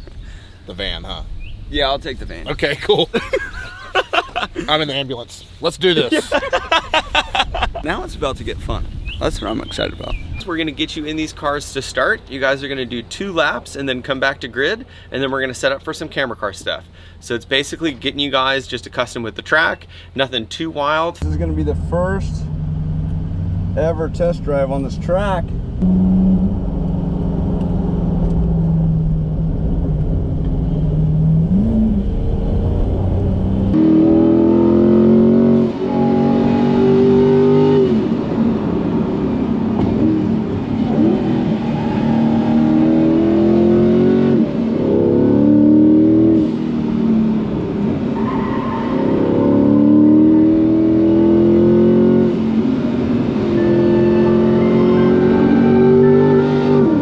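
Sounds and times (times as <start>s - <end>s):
car engine accelerating: 21.2s - 57.0s.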